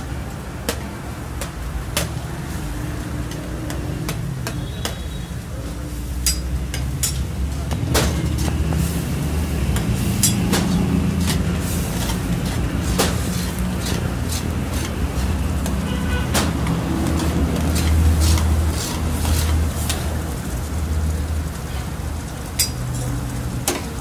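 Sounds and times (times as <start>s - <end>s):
spatula scraping steel pan: 9.7s - 20.0s.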